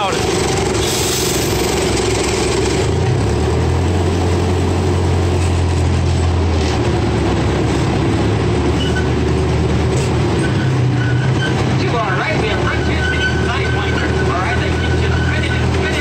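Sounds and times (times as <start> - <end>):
miniature train engine drone: 0.0 - 10.6.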